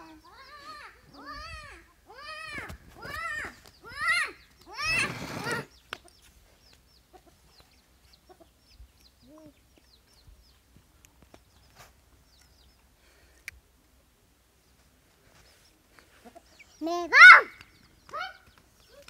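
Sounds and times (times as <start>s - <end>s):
chicks cheeping: 0.0s - 1.9s, 3.1s - 10.7s, 15.4s - 16.9s
chickens squawking: 0.0s - 6.3s, 16.1s - 19.0s
chicken clucks: 5.4s - 10.6s, 16.0s - 16.8s.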